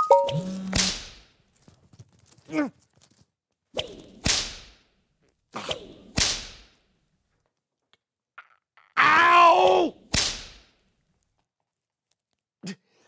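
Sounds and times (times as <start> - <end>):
whip-crack sound effects: 0.3 - 1.2, 3.8 - 4.9, 5.6 - 6.8, 10.1 - 10.7.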